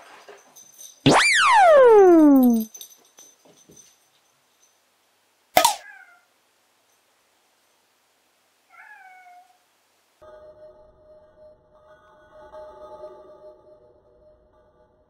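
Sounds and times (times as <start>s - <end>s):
sharp click: 5.6s - 5.8s
cat meowing: 5.8s - 6.3s, 8.7s - 9.6s.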